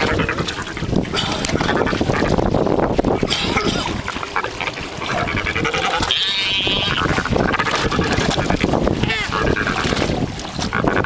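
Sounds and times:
seabirds squabbling calls: 0:00.0 - 0:02.4, 0:03.1 - 0:11.0
rapid quavering bird call: 0:04.2 - 0:09.9.

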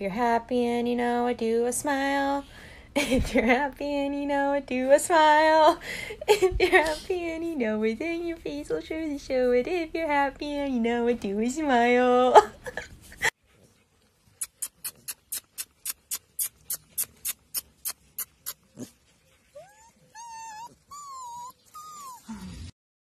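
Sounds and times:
puppy whining: 0:14.4 - 0:22.8.

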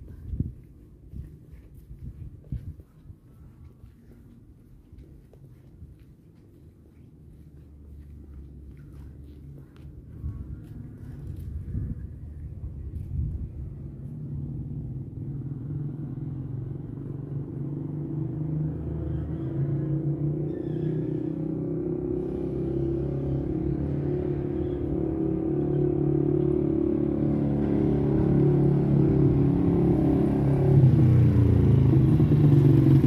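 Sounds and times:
motorcycle engine approaching: 0:07.8 - 0:33.0.

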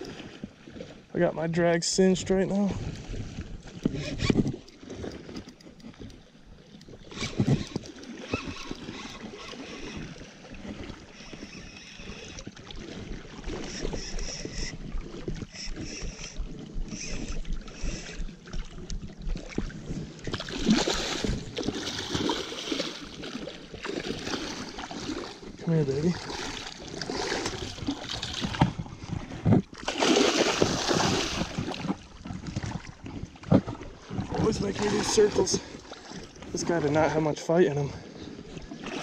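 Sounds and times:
fish thrashing water splashing: 0:15.0 - 0:28.8, 0:29.7 - 0:36.4.

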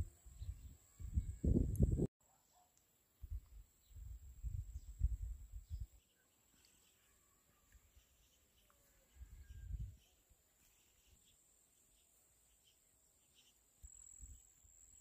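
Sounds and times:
wind buffeting microphone: 0:00.0 - 0:02.1, 0:03.2 - 0:06.0, 0:09.2 - 0:10.0
faint high chirps: 0:03.8 - 0:15.0.

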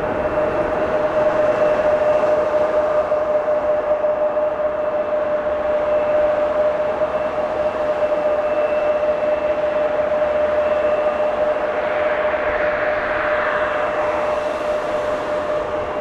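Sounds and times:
jet engines running: 0:00.0 - 0:16.0.

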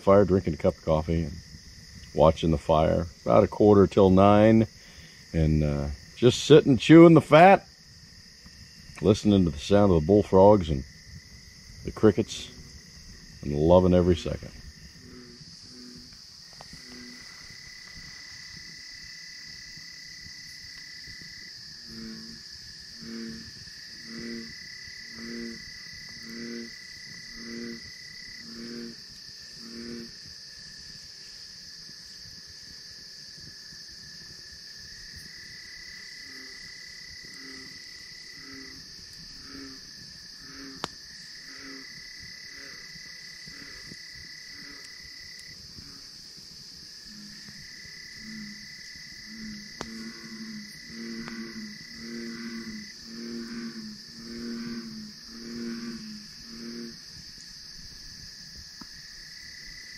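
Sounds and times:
crickets chirping: 0:00.0 - 0:59.9
high insect trill: 0:00.0 - 0:59.9
bullfrogs calling: 0:08.4 - 0:30.2, 0:35.2 - 0:46.2, 0:47.0 - 0:57.2.

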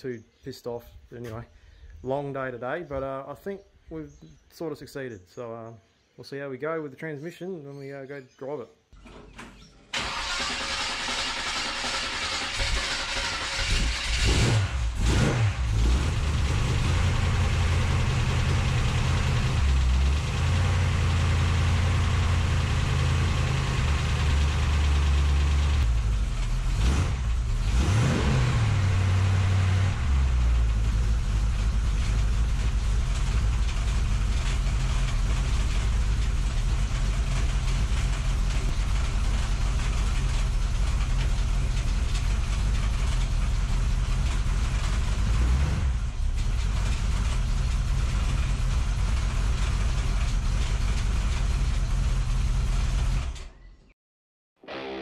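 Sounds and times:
car engine revving and idling: 0:12.2 - 0:53.3.

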